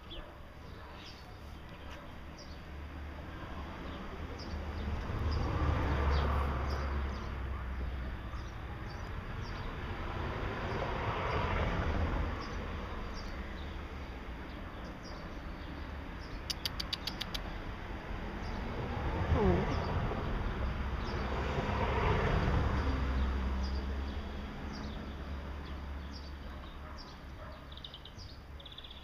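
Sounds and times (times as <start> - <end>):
small birds chirping: 0.0 - 2.9, 3.7 - 11.4, 12.3 - 17.7, 18.4 - 18.7, 19.3 - 21.4, 23.1 - 29.0
traffic noise: 0.0 - 29.0
sharp high ticks: 16.4 - 17.5.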